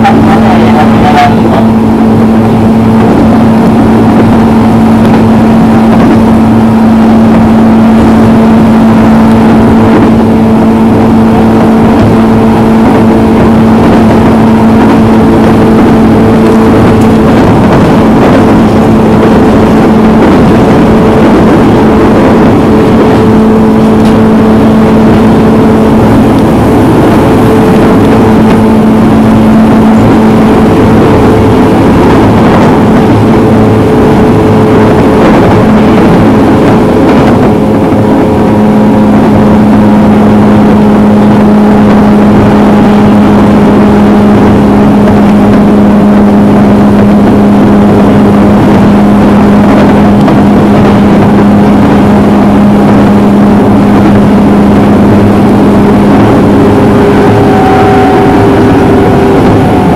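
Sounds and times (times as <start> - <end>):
faint high tone: 0.0 - 1.8
low hum: 0.0 - 59.9
train wheels rumbling on rail: 0.0 - 59.9.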